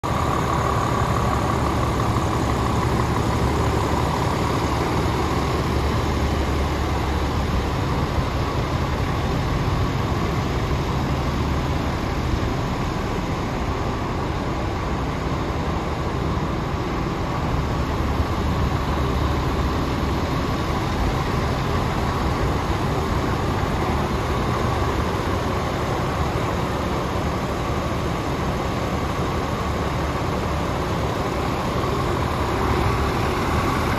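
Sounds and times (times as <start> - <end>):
diesel engine idling: 0.0 - 33.9.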